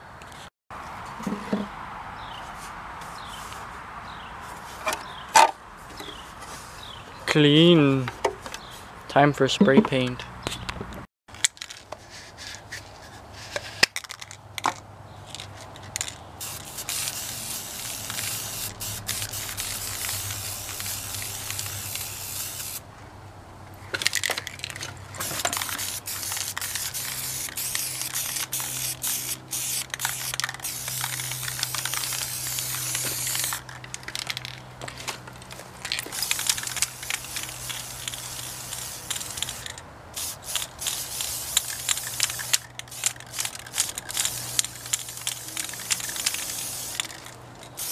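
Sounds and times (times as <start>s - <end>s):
spray paint can hissing: 16.4s - 22.8s, 25.2s - 34.6s, 36.1s - 47.9s.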